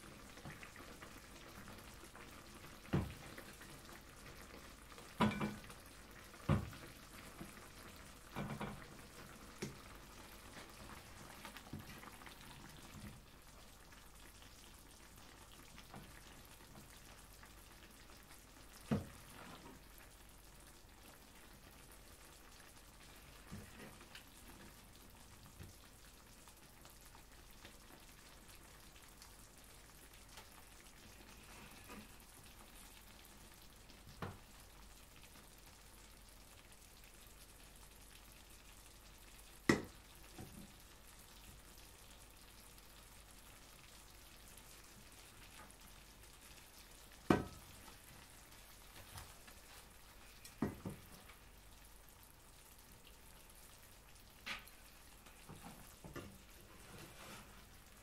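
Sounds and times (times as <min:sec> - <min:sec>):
sauce sizzling in a pan: 0:00.0 - 0:58.0.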